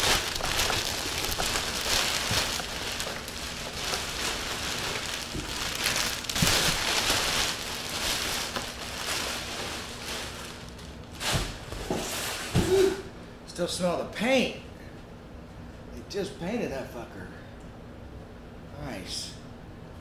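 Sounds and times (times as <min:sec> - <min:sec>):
plastic sheeting crinkling: 0:00.0 - 0:12.6.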